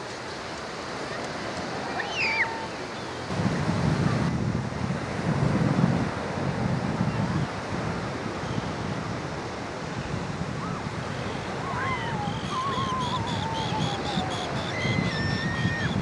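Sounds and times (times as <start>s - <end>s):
surf: 0.0s - 16.0s
wind rumbling on microphone: 0.0s - 16.0s
whistled bird calls: 2.0s - 3.2s, 11.3s - 16.0s.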